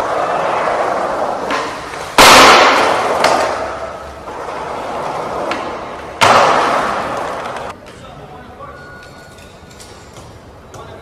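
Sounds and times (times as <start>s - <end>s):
skateboard hitting concrete: 0.0s - 7.7s
skateboard wheels rolling: 0.0s - 7.8s.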